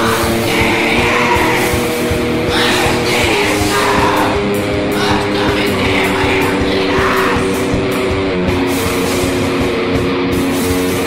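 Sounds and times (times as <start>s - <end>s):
harsh rasped voice: 0.0s - 8.1s
distorted guitar chords: 0.0s - 11.0s
fast drumming: 0.0s - 11.0s.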